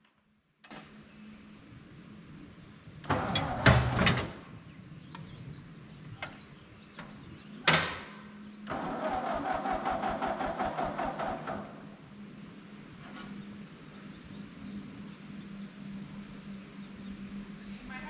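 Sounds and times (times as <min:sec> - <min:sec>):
tractor engine hum: 0:01.1 - 0:18.0
mower cutting grass and brush: 0:03.1 - 0:04.4.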